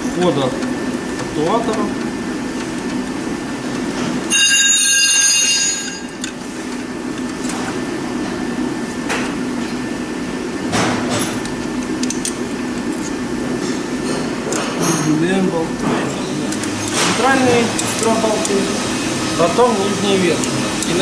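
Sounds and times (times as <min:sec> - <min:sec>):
steady low hum: 0:00.0 - 0:21.0
high-pitched metallic squeal: 0:04.3 - 0:06.2.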